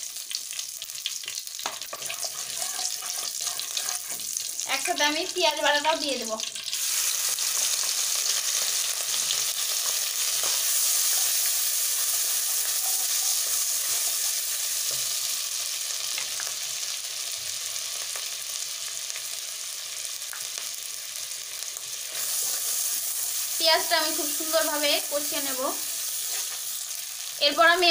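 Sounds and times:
onion paste sizzling in oil: 0.0 - 27.9
wooden spatula scraping pan: 1.9 - 4.4.

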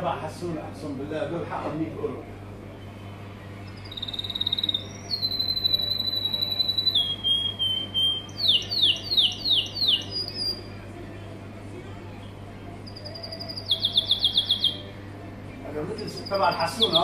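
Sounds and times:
canary singing trills: 3.6 - 10.8, 12.8 - 15.0, 15.8 - 17.0.

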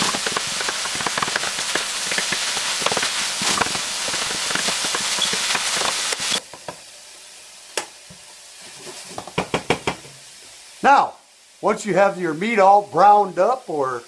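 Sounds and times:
sausage sizzling and crackling: 0.0 - 14.0
knock: 9.2 - 10.1.

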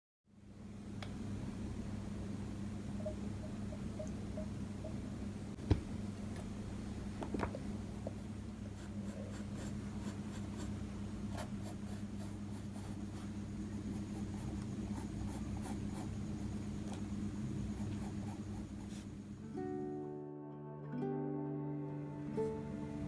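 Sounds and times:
steady low hum: 0.3 - 20.2
pencil scratching on paper: 8.6 - 19.2.

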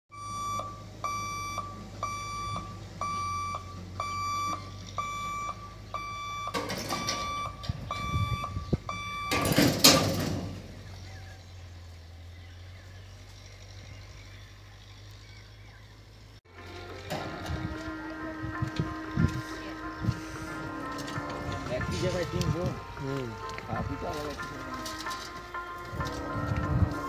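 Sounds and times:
warning buzzer beeping: 0.1 - 9.7.

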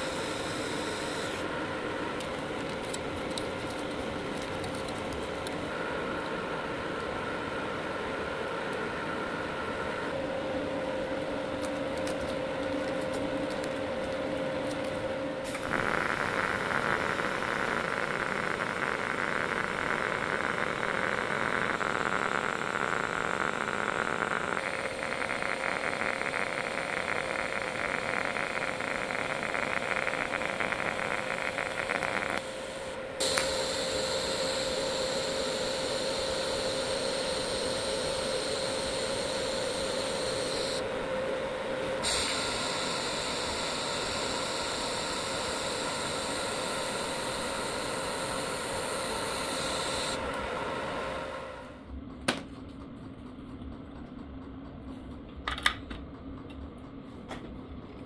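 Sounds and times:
welding arc hissing: 0.0 - 1.5, 15.5 - 40.8, 42.0 - 50.2.

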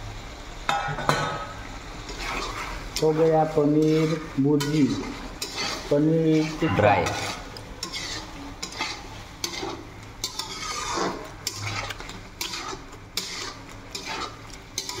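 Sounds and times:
metal utensil scraping pan: 2.1 - 15.0.

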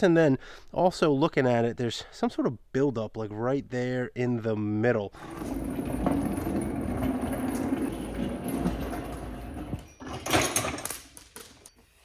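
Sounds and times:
engine stand casters rumbling: 5.2 - 10.8.

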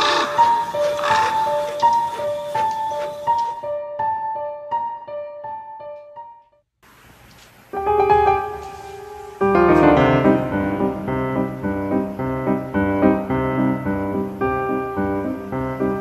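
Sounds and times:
piano chords: 0.0 - 6.6, 7.7 - 16.0.

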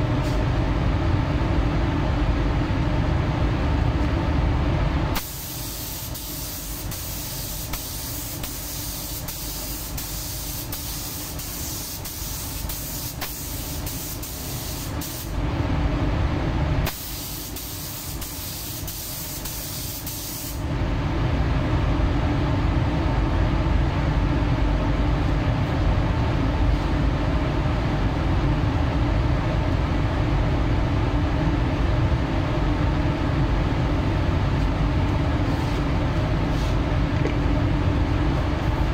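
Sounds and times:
steady low rumble: 0.0 - 19.8, 20.6 - 38.9
paint spray gun hissing: 5.2 - 15.3, 16.9 - 20.6.

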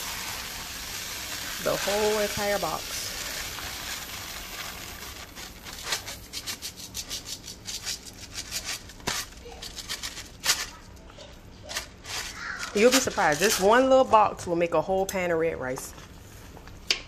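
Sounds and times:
rice grains pouring: 0.0 - 6.4.

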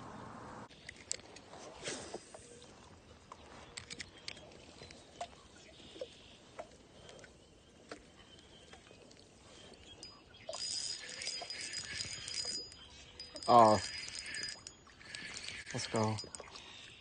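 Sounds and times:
rustling hiss with high ring: 9.8 - 17.0
fishing reel clicks and ticks: 10.0 - 17.0.

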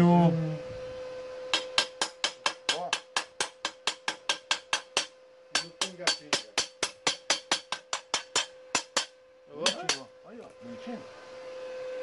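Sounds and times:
wire brush striking steel plate: 1.5 - 10.1.

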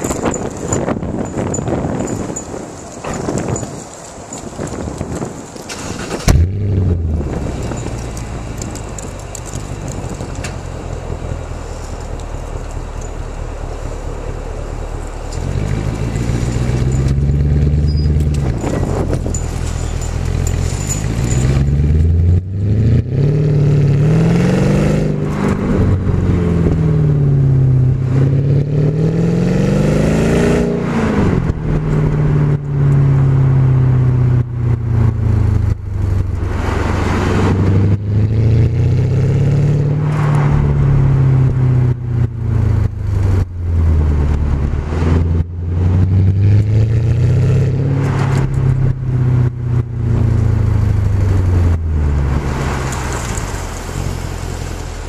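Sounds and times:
car engine idling: 0.0 - 22.4
car engine revving: 5.7 - 55.0.

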